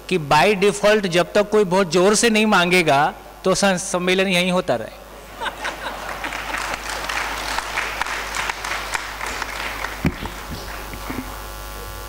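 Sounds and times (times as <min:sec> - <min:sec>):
audience applauding: 0:05.6 - 0:11.5
thump on microphone: 0:10.0 - 0:11.3.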